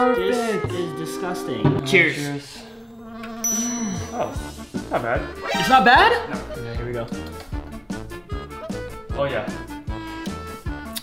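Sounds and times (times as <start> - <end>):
upbeat jazzy swing music: 4.1 - 11.0.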